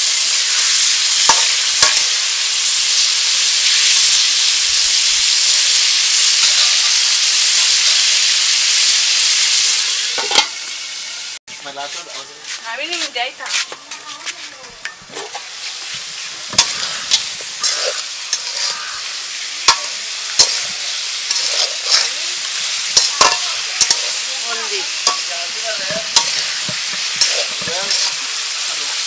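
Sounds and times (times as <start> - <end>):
curry sizzling in oil: 0.0 - 29.0
metal spatula scraping pot: 12.9 - 19.0, 19.6 - 28.4.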